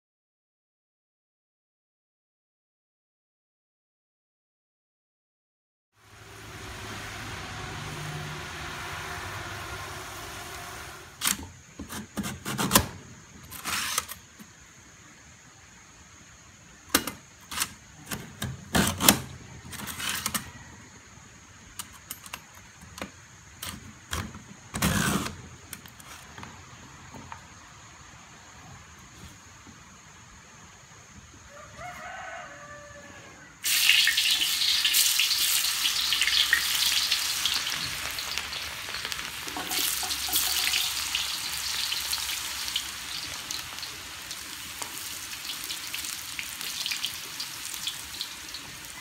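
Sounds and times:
burner flame hissing: 6.0s - 11.2s, 33.6s - 49.0s.

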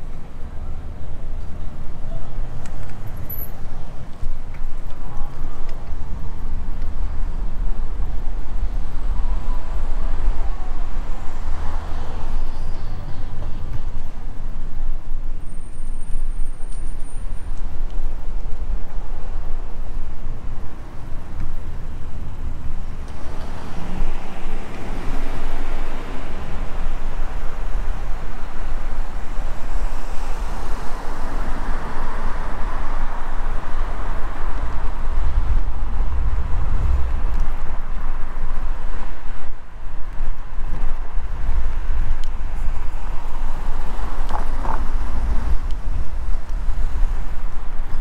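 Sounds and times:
rushing road noise: 0.0s - 48.0s
wind buffeting microphone: 30.4s - 48.0s.

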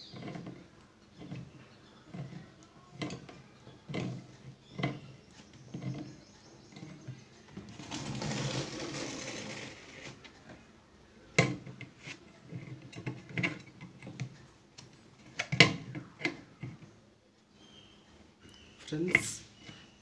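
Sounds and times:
rustling scrape: 7.6s - 10.3s, 11.9s - 13.6s.

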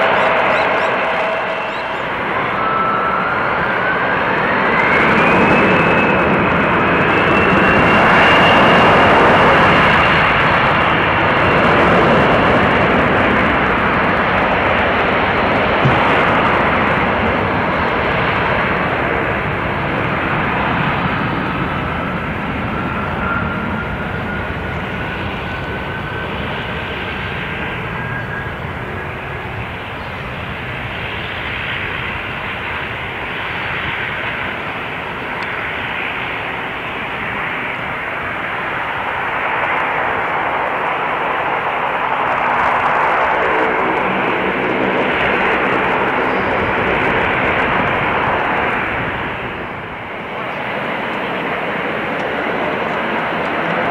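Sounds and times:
distant jet engines rushing: 0.0s - 53.9s.

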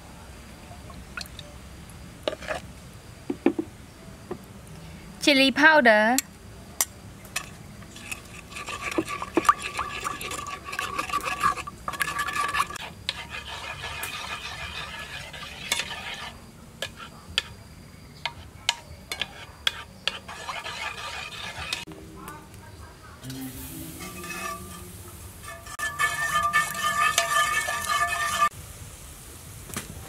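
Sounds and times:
spoon scraping pot bottom: 2.3s - 2.6s, 7.4s - 17.6s, 18.3s - 21.9s, 23.7s - 28.5s
spoon clinking against pot: 18.2s - 21.8s, 25.4s - 28.5s.

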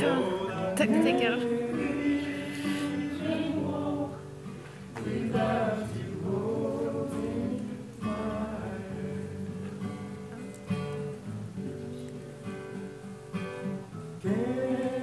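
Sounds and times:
woman singing gospel song: 0.0s - 4.3s
acoustic guitar: 0.0s - 15.0s.

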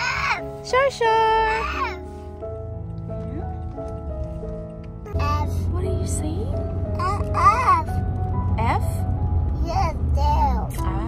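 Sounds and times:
car cabin rumble: 0.0s - 11.0s
soft background music: 0.0s - 11.0s.

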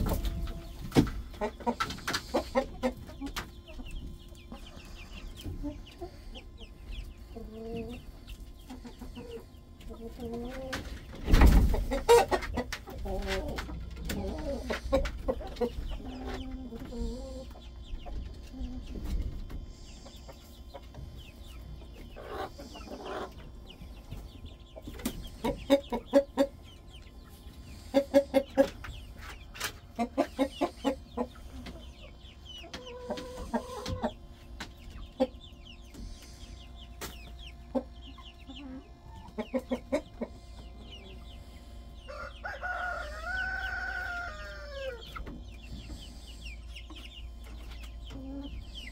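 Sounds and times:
chickens clucking: 0.0s - 48.9s
chicken drawn-out call: 42.0s - 45.2s.

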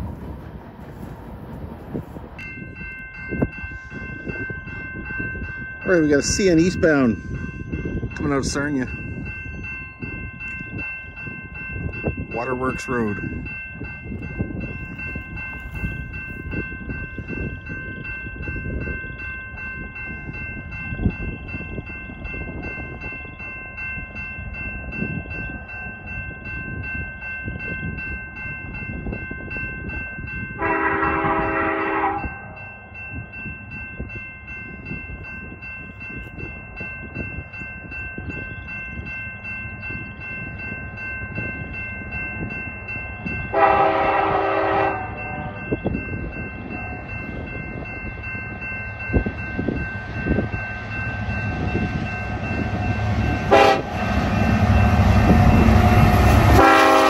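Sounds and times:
crossing bell ringing: 0.0s - 57.0s
train wheels rumbling on rails: 0.0s - 57.0s
locomotive horn blast: 30.6s - 32.5s, 43.5s - 45.7s, 53.5s - 55.4s, 56.2s - 57.0s.

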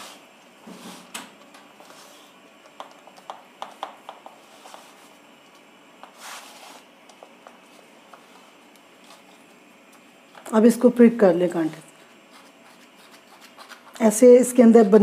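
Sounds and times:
palms rubbing over dough: 1.7s - 10.0s, 11.8s - 15.0s.

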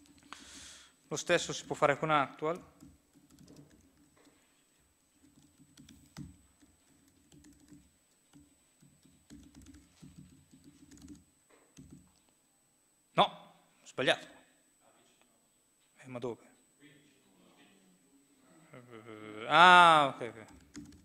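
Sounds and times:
laptop keyboard typing: 0.0s - 12.4s, 20.3s - 21.0s.

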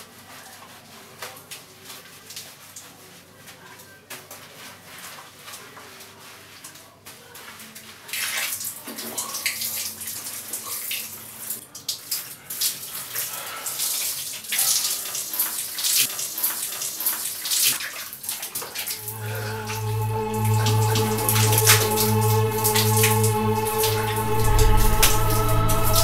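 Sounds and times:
shower water spraying: 12.8s - 26.0s.

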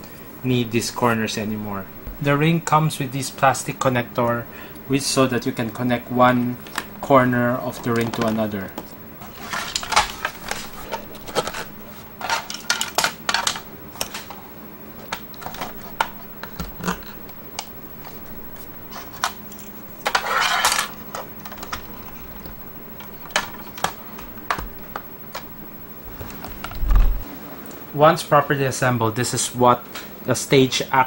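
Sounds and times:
scraping rustle: 9.2s - 12.7s, 18.5s - 22.4s, 26.0s - 27.2s.

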